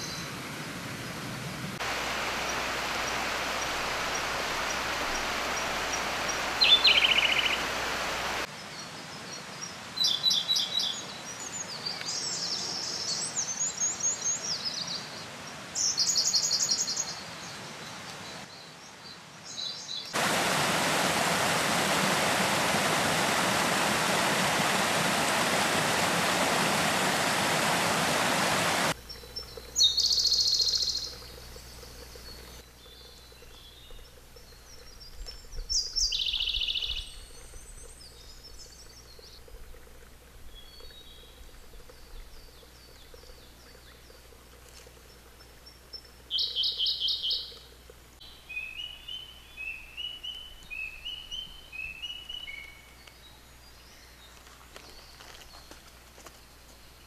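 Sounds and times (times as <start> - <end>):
bird singing trilled phrases: 6.3 - 7.7, 29.0 - 44.3, 45.0 - 54.2
steady rushing noise: 20.2 - 29.0.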